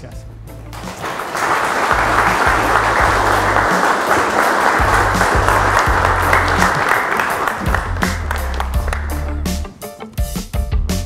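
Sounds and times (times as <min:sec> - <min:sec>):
background music with bass: 0:00.0 - 0:01.0, 0:01.8 - 0:11.0
audience applauding: 0:00.7 - 0:09.6.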